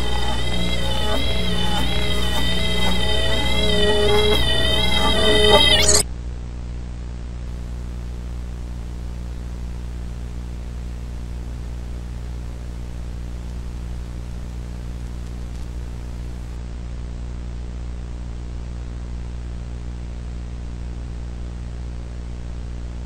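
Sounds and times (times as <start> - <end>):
music: 0.0 - 6.0
static hiss: 0.0 - 6.0, 7.5 - 16.6
low electrical hum: 0.0 - 23.0.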